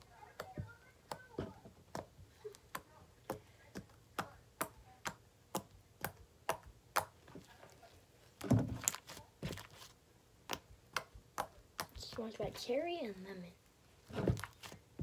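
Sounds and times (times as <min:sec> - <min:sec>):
slime squish: 0:08.3 - 0:12.1.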